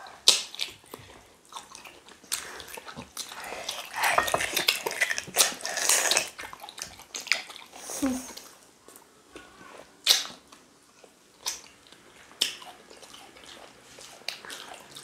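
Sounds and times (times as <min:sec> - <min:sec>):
chewing and lip smacks: 0:10.0 - 0:15.0.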